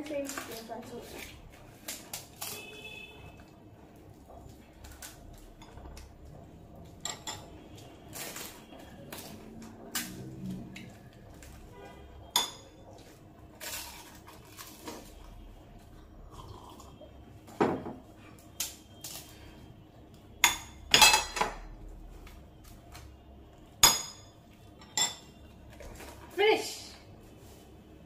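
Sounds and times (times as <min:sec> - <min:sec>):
ceramic dishes clinking: 0:20.4 - 0:21.6, 0:23.8 - 0:25.3.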